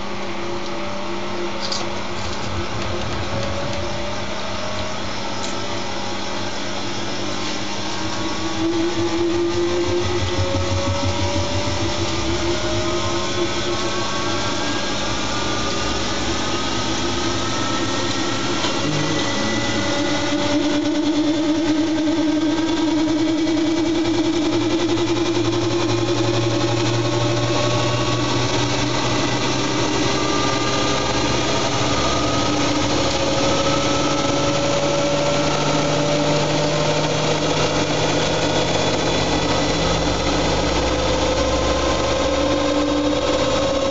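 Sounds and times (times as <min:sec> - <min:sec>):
low hum: 0:00.0 - 0:43.9
washing machine motor whine: 0:00.0 - 0:43.9.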